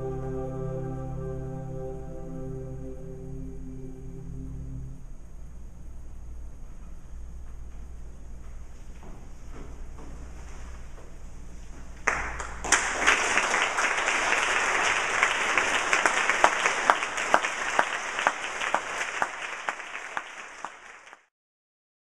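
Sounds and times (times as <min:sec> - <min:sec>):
audience applause: 0:12.1 - 0:21.3.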